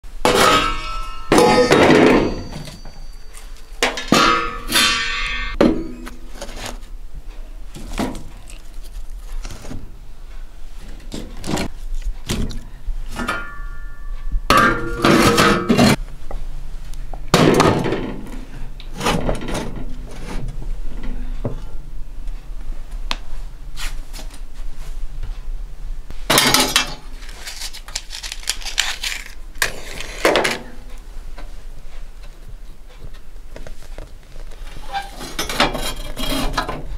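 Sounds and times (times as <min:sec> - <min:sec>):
metal lids and pot clanking: 0:00.3 - 0:06.7.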